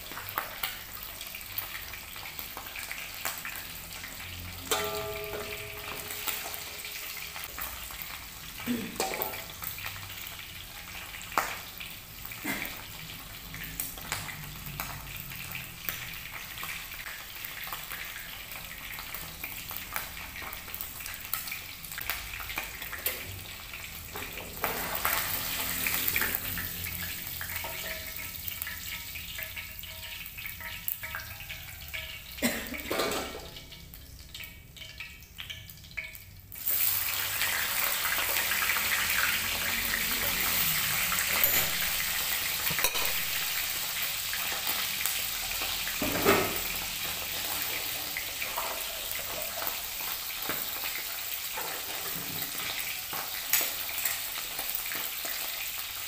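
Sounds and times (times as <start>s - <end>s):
oil sizzling in a frying pan: 0.0s - 56.0s
utensil clinking against pan: 4.7s - 6.6s, 42.7s - 43.2s.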